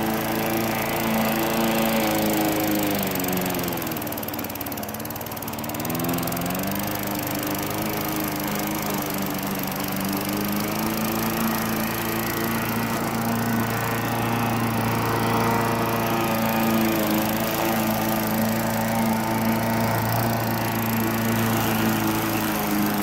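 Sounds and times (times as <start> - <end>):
lawn mower engine under load: 0.0 - 23.0.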